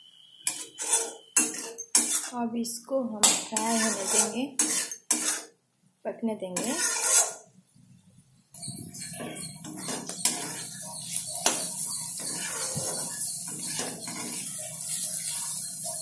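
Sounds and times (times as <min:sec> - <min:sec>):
metal spatula scraping a pan: 0:00.4 - 0:02.4, 0:03.2 - 0:05.6, 0:06.6 - 0:07.5, 0:08.6 - 0:16.0.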